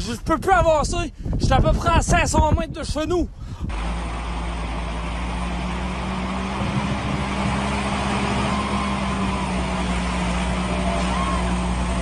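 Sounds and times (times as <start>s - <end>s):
truck engine humming: 3.6s - 12.0s.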